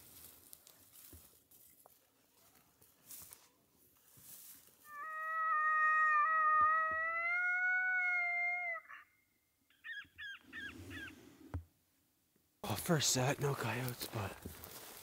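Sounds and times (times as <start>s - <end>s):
electronic coyote howl: 4.9s - 9.1s
electronic coyote yips: 4.9s - 9.1s.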